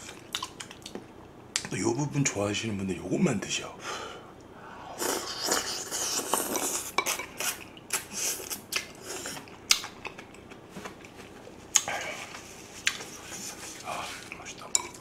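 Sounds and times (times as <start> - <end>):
food being chewed and sucked: 4.9 - 10.4.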